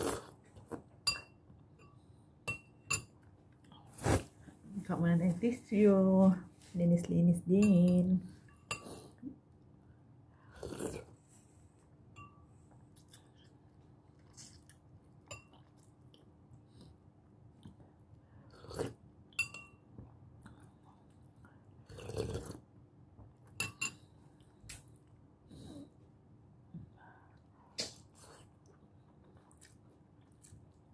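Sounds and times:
close chewing and mouth sounds: 12.8 - 19.1, 20.1 - 22.8, 27.2 - 30.9.

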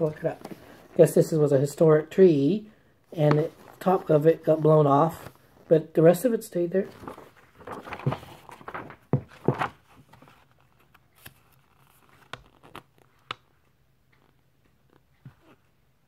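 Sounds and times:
book pages rustling: 0.0 - 1.8, 3.1 - 15.7.

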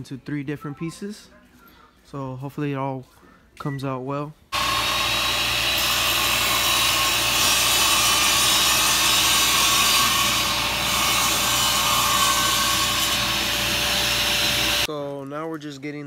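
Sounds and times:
circular saw cutting panel: 4.6 - 14.9.

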